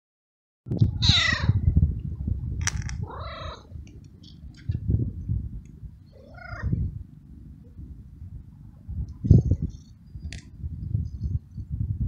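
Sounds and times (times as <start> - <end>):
low rumble: 0.7 - 12.0
cat meowing: 1.0 - 1.6, 3.0 - 3.7, 6.2 - 6.8.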